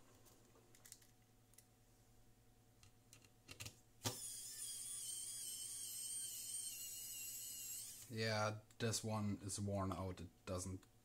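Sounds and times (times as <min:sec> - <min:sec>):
electric screwdriver whining: 0:04.1 - 0:08.1.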